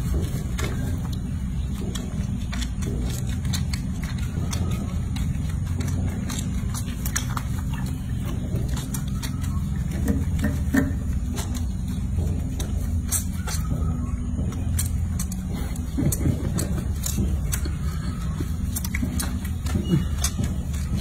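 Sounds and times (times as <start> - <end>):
low motor hum: 0.0 - 21.0.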